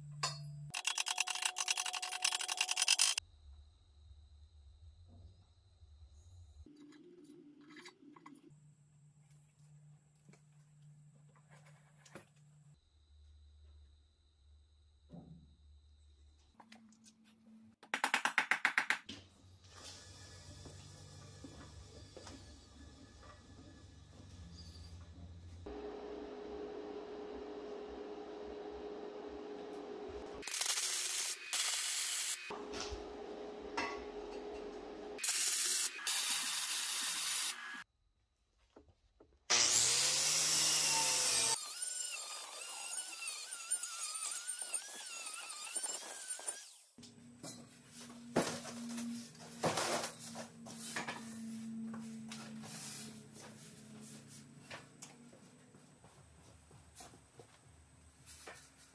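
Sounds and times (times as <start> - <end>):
power tool bursts: 30.4 - 32.6.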